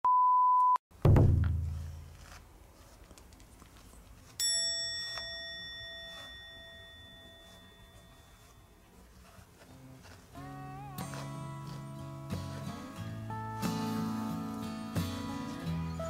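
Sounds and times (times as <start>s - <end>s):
deep thud: 1.0s - 2.0s
bell-like ding: 4.4s - 8.7s.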